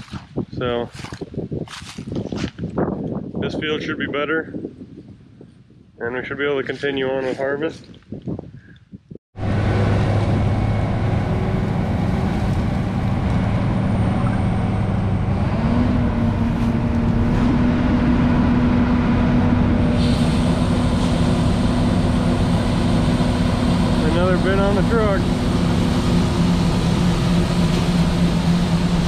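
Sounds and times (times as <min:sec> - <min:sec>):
combine harvester droning: 0:09.4 - 0:29.0.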